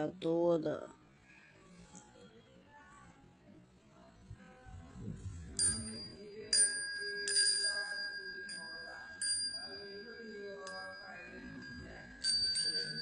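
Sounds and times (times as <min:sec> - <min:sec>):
wind chime ringing: 0:05.6 - 0:13.0.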